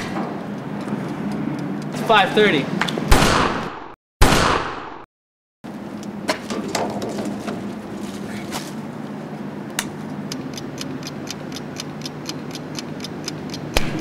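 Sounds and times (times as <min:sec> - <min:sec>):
scattered clicks: 0:09.8 - 0:14.0
even ticking: 0:10.2 - 0:14.0.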